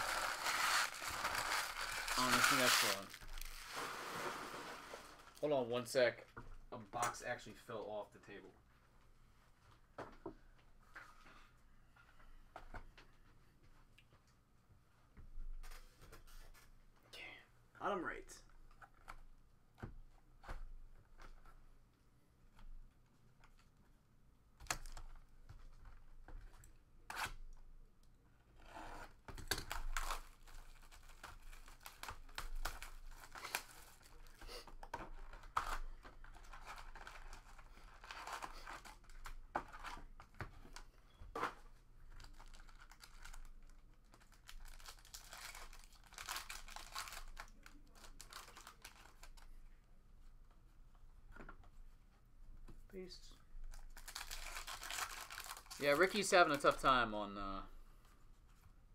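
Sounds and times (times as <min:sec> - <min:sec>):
plastic wrap tearing and crinkling: 0:00.0 - 0:05.5, 0:29.4 - 0:34.4, 0:35.2 - 0:40.0, 0:42.2 - 0:49.4, 0:53.7 - 0:56.8.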